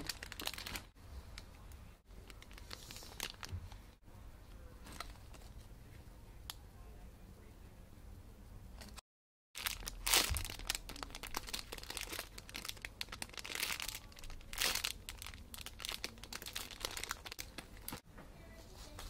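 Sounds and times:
plastic bag crinkling: 0.0 - 1.0, 2.2 - 3.9, 9.6 - 18.0.

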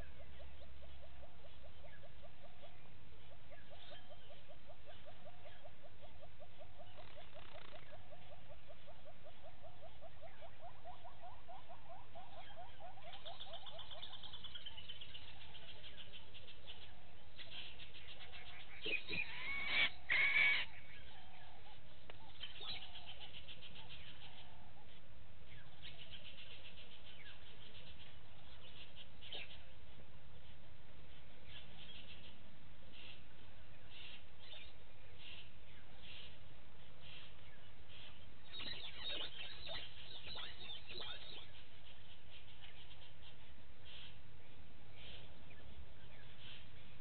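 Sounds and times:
cluster of animal calls: 0.0 - 44.2
background hiss: 13.4 - 47.0.

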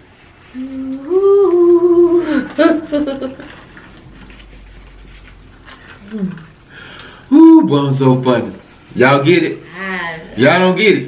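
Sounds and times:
woman humming: 0.5 - 2.9, 6.0 - 6.6.

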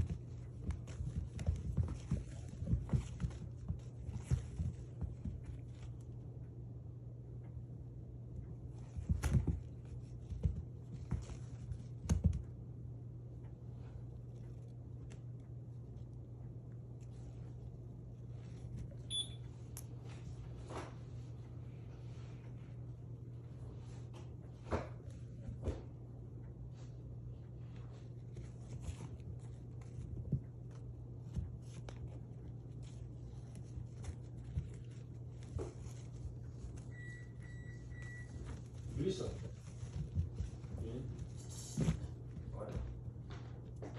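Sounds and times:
kitten pouncing on carpet: 0.0 - 6.2, 8.6 - 12.6, 27.6 - 43.9.

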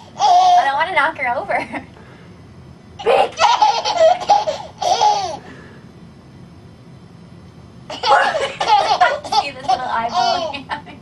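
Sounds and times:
toddler laughing: 0.0 - 0.7, 3.0 - 5.4, 7.9 - 10.8.

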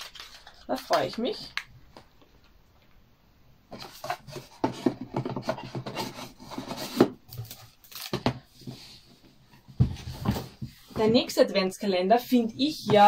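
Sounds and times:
cardboard rubbing and scraping: 3.7 - 7.2.

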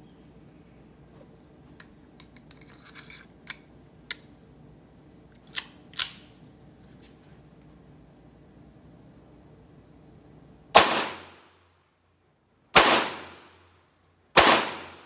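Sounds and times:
pistol metallic clicks: 3.4 - 4.4, 5.4 - 6.4
pistol slide clacks: 5.4 - 6.4.

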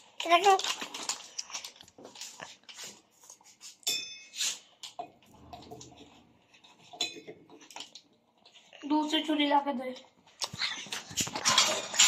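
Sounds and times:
wrapper crinkling: 0.0 - 3.4.

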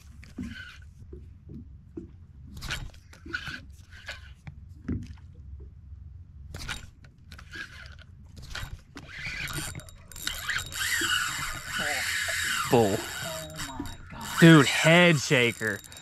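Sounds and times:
reel drag buzzing: 0.2 - 1.0, 2.5 - 4.5, 6.6 - 16.0
reel clicking: 2.6 - 4.6, 6.6 - 16.0.

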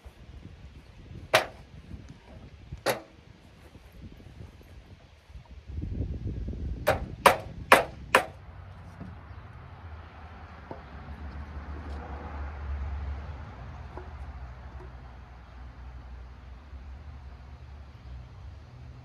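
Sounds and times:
hammer blows on wooden board: 1.3 - 1.7, 6.8 - 8.4.

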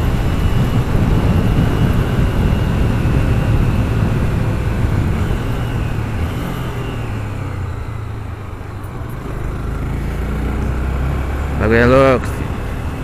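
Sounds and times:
wind rushing past microphone: 0.0 - 8.0
motorcycle engine cruising: 0.0 - 13.0.

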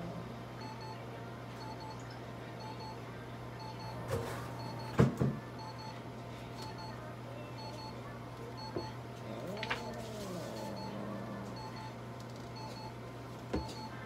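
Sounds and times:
steady electrical hum: 0.0 - 14.0
faint electronic beeps: 0.6 - 1.0, 1.6 - 3.0, 3.6 - 5.0, 5.6 - 6.0, 6.6 - 9.0, 10.6 - 11.0, 11.6 - 12.0, 12.6 - 13.0, 13.6 - 14.0.

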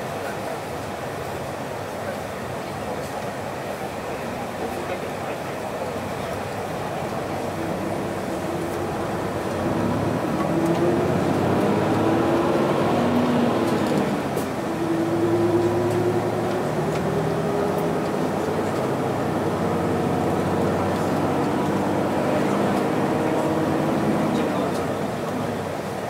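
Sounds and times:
road noise: 0.0 - 26.0
bus diesel engine droning: 3.6 - 26.0.

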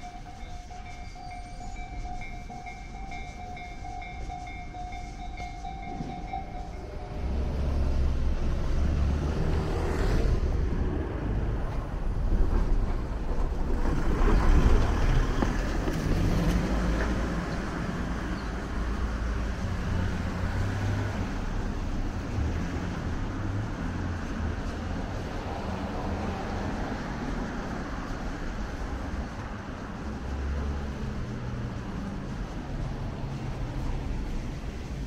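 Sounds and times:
traffic rumble on street: 0.0 - 35.0.

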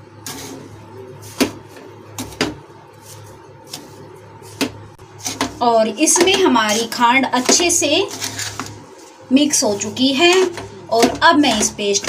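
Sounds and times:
metal spoon scraping dough: 0.2 - 9.0.

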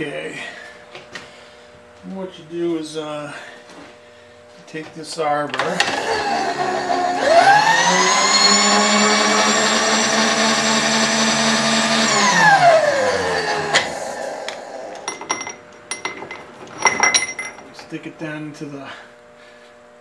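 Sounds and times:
electric motor whining: 5.6 - 15.2.

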